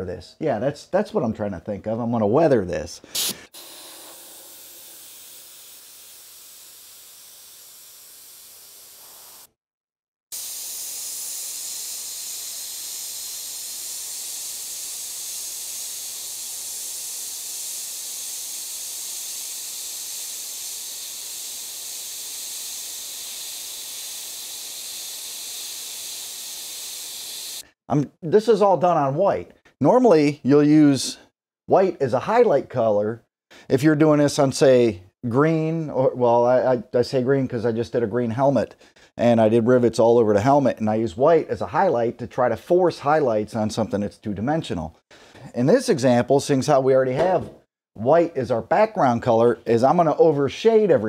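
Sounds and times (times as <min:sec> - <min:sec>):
airbrush air hiss: 0:03.0 - 0:09.6, 0:10.3 - 0:27.7.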